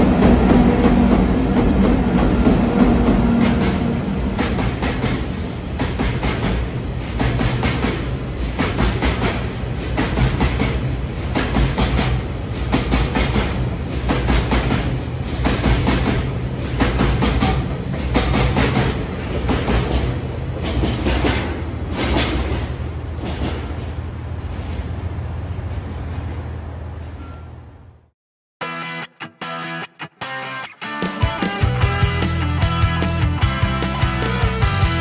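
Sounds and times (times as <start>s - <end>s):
train wheels clattering over rail joints: 0.0s - 25.0s
train rumble: 0.0s - 28.0s.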